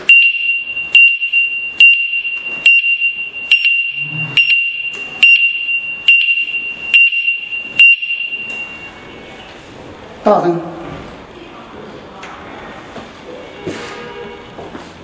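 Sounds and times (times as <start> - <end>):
high-pitched beep tone: 0.1 - 9.5.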